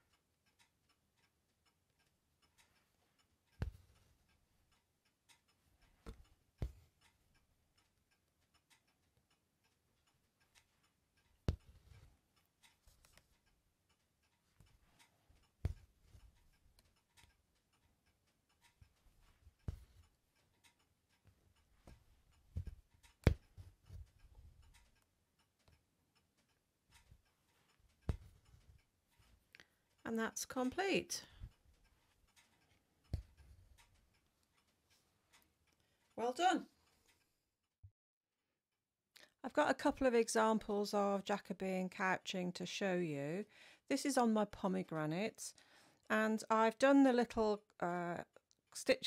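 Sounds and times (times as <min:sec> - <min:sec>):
needle piercing taut fabric: 0:02.5 - 0:07.2, 0:10.4 - 0:13.4, 0:14.3 - 0:17.5, 0:18.5 - 0:25.0, 0:26.9 - 0:29.5, 0:33.1 - 0:33.9.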